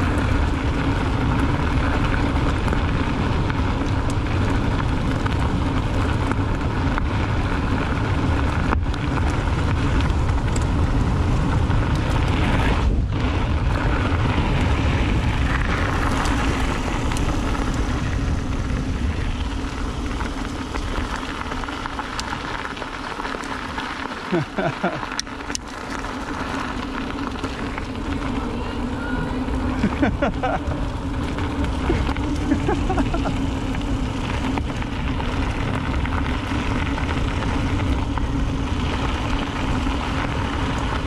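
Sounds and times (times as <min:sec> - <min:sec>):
wind buffeting microphone: 0:00.0 - 0:22.2
small clicks and rattles: 0:00.0 - 0:41.0
tyres rolling on dirt trail: 0:00.0 - 0:41.0.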